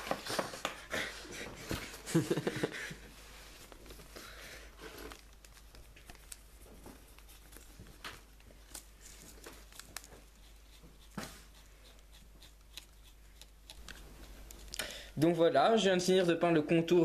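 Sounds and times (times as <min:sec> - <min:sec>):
toilet paper rustling: 0:00.0 - 0:00.9, 0:03.2 - 0:11.4.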